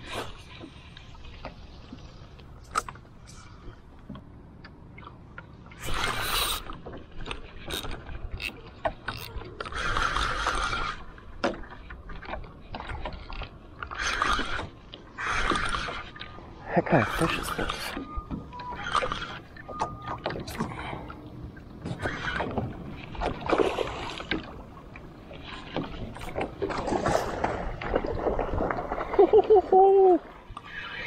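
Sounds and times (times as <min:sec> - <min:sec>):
reel clicks: 0:04.6 - 0:10.9
fishing reel gears whirring: 0:07.6 - 0:10.9.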